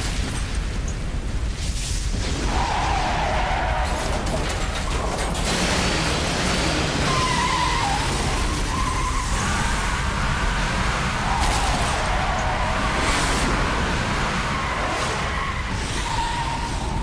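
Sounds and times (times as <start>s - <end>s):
car engines revving hard: 2.4s - 17.0s
wavering tyre squeals: 2.4s - 17.0s.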